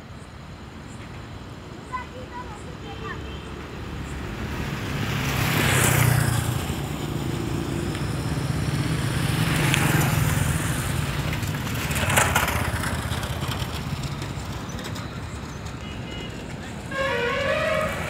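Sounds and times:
road and wind noise: 0.0 - 18.0
vehicle engine humming: 2.5 - 18.0
rushing noise: 3.7 - 18.0.

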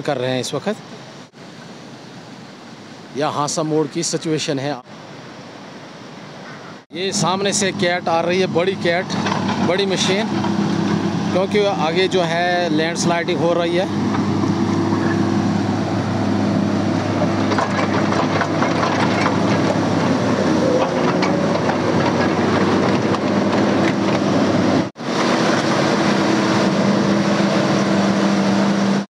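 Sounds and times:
excavator diesel engine running: 6.9 - 29.0
metal clanks: 17.2 - 24.2.

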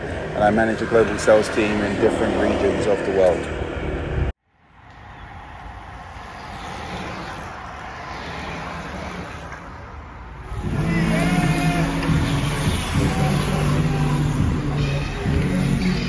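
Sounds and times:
passing traffic: 0.0 - 16.0
music: 10.6 - 16.0.

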